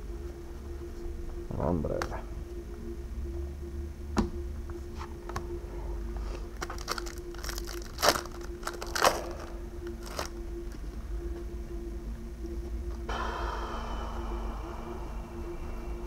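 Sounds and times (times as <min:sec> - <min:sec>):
plastic and foil packaging crinkling: 0:06.6 - 0:10.9.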